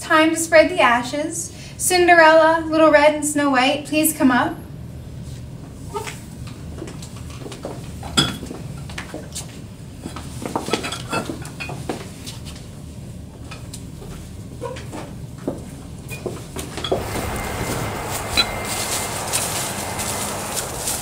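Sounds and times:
low room hum: 0:16.9 - 0:21.0.

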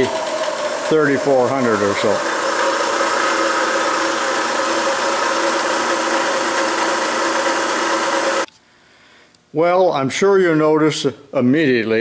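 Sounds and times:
drill press motor humming and whining: 0:00.0 - 0:08.5.

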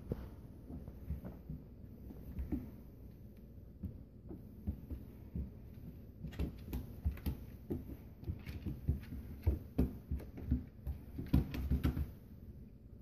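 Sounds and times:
puppy claws scrabbling on wood floor: 0:03.8 - 0:12.2.

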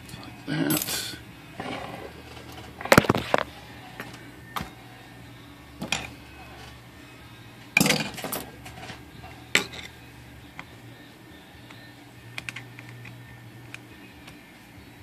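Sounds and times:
metal parts clinking: 0:07.8 - 0:09.0.

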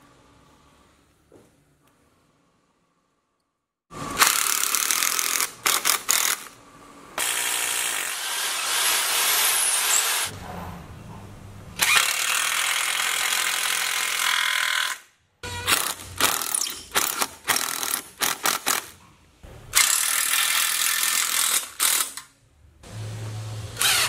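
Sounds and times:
cordless power driver driving screws: 0:23.8 - 0:24.0.

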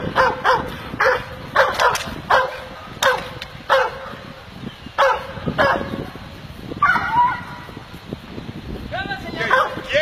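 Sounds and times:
dog barking sharply: 0:00.1 - 0:04.0.

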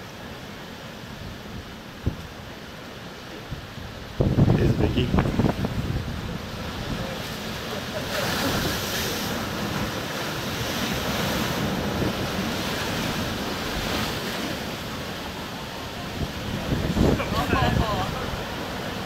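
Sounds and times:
surf crashing against seawall: 0:00.0 - 0:19.0
wind on microphone: 0:01.2 - 0:02.4, 0:03.5 - 0:19.0.

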